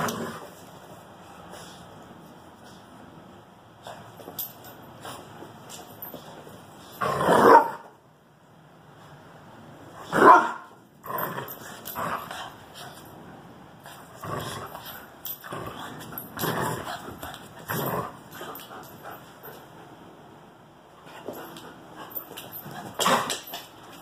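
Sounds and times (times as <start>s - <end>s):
dogs barking: 10.1s - 10.7s.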